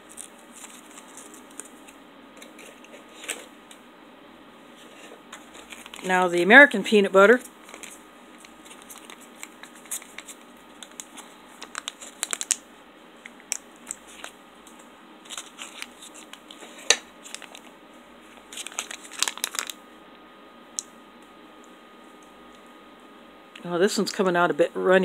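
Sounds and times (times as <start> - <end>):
plastic pouch crinkling and tearing: 5.5 - 6.2, 7.6 - 12.6, 15.2 - 17.7, 18.4 - 19.8.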